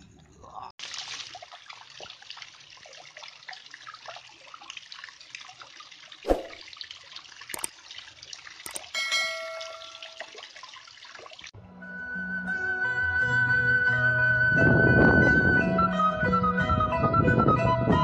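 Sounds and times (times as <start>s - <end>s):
water plop: 0.8s - 11.5s
water splashing into a pool: 0.8s - 11.6s
sharp clicks: 8.7s - 8.9s
bright ringing chime: 9.0s - 10.3s.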